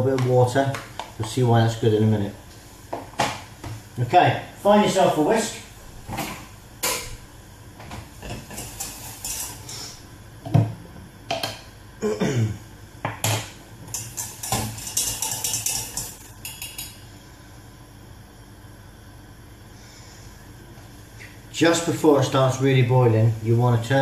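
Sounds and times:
metal utensils clattering: 8.2s - 9.7s, 13.9s - 17.0s
whisk clicking in saucepan: 13.9s - 16.9s.

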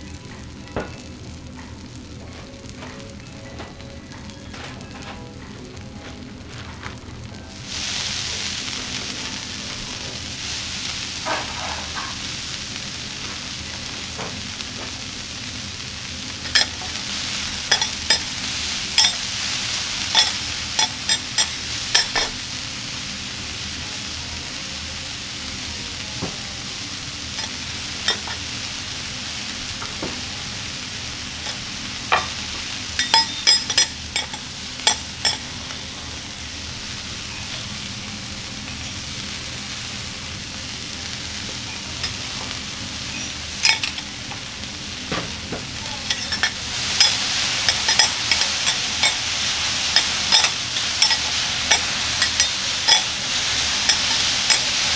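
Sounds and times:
food sizzling on a griddle: 0.0s - 54.9s
metal spatulas clacking and scraping: 50.0s - 53.1s.

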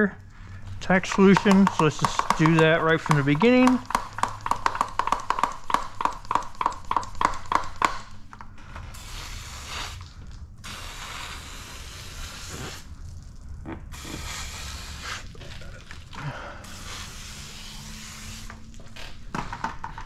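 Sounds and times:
sprayer hissing: 0.9s - 4.0s, 9.0s - 10.0s, 10.6s - 12.9s, 13.9s - 15.4s, 16.6s - 18.8s.

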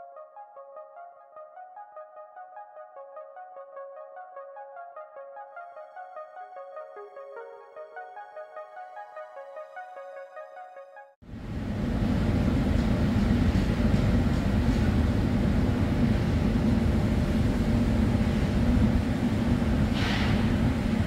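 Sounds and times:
heavy machinery engine rumble: 11.3s - 21.0s
brief hiss: 19.9s - 20.6s.

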